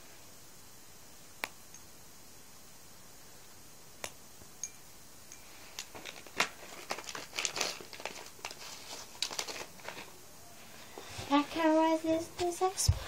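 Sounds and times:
candy wrappers crinkling: 0:05.7 - 0:10.1.

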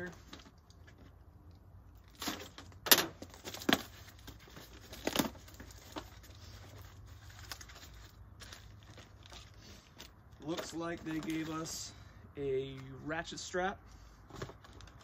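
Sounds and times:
cardboard scraping and ripping: 0:02.1 - 0:11.7
cardboard rustling: 0:02.1 - 0:11.8, 0:14.3 - 0:15.0.

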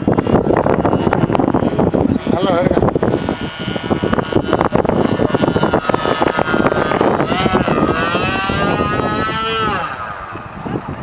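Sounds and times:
model airplane motor whining: 0:00.0 - 0:11.0
wind noise on microphone: 0:00.0 - 0:11.0.

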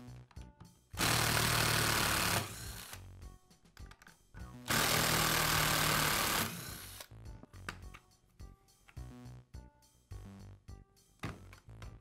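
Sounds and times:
cordless power driver running: 0:01.0 - 0:03.0, 0:04.7 - 0:07.1.

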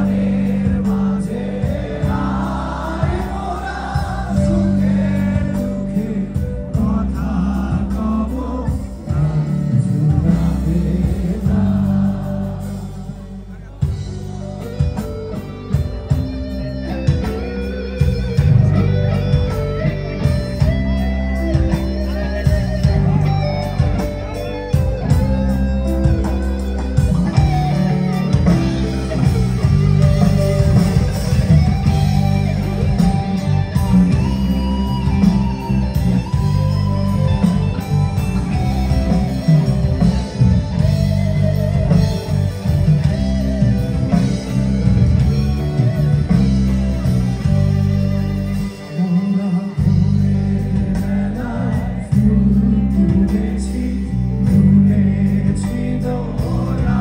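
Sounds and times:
man singing: 0:00.0 - 0:14.1, 0:48.6 - 0:57.0
live rock band playing: 0:00.0 - 0:57.0.

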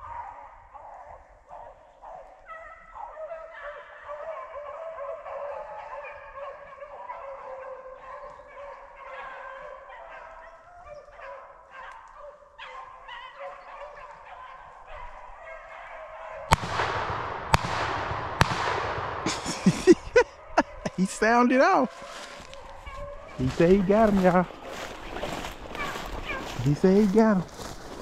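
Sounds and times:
hounds baying: 0:00.0 - 0:28.0
sharp cracks: 0:16.5 - 0:20.2.

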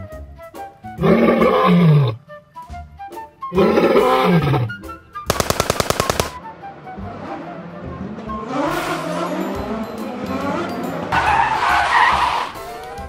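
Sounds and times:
light background music: 0:00.0 - 0:13.0
lion roar: 0:01.0 - 0:02.2, 0:03.6 - 0:04.8
rapid machine-gun fire: 0:05.3 - 0:06.4.

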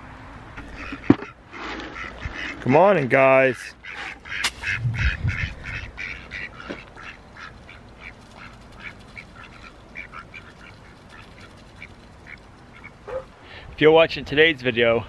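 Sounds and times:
ducks quacking softly: 0:00.6 - 0:02.7, 0:03.6 - 0:13.3.

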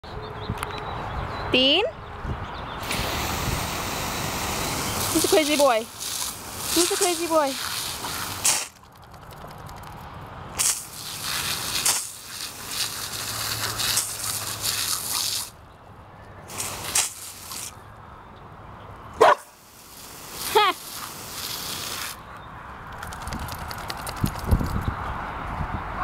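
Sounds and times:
garden hose spray hissing: 0:02.8 - 0:09.4, 0:10.6 - 0:15.6, 0:16.5 - 0:17.8, 0:19.3 - 0:22.2.

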